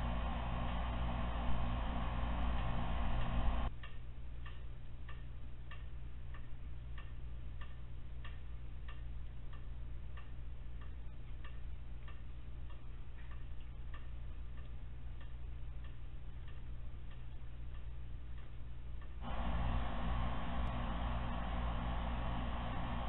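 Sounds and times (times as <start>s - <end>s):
low hum: 0.0s - 23.0s
clock ticking: 3.7s - 19.8s.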